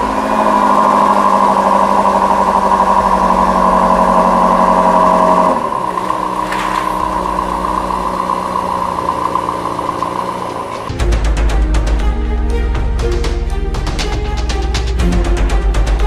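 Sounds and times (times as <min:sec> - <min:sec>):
car engine idling: 0:00.0 - 0:12.2.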